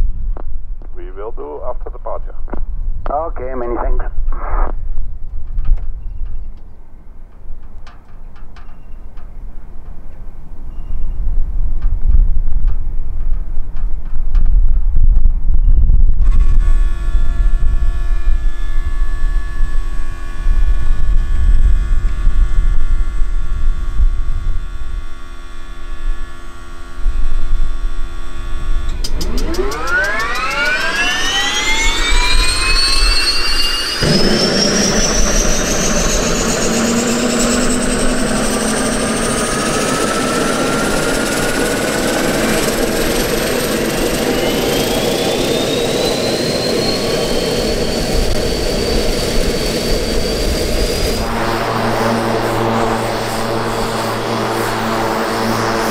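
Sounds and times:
steady hum: 0.0 - 5.2, 16.2 - 55.9
wind on microphone: 10.8 - 29.9
turbine whine rising in pitch: 15.6 - 55.9
engine rushing noise: 26.9 - 55.9.

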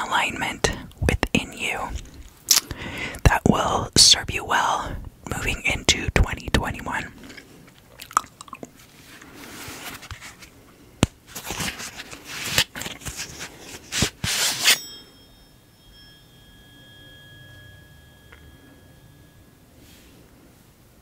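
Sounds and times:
tuning fork ringing: 14.4 - 21.0.

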